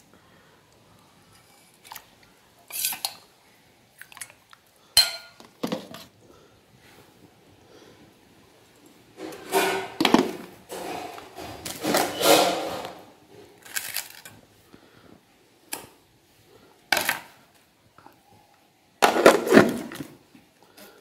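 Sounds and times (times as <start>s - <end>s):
steel pots and lids clattering: 2.6s - 3.3s, 5.0s - 6.0s, 9.2s - 13.2s.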